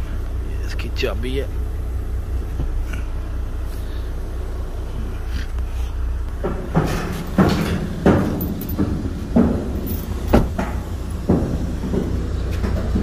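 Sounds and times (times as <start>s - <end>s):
low rumble: 0.0s - 13.0s
sharp knocks: 6.4s - 13.0s.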